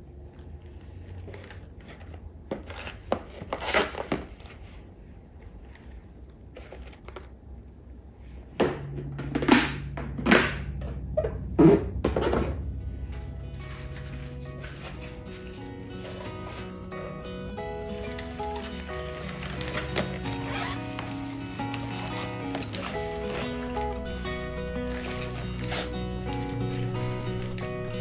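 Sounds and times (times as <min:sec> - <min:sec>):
low steady hum: 0:00.0 - 0:28.0
paper towel rustling: 0:17.8 - 0:28.0.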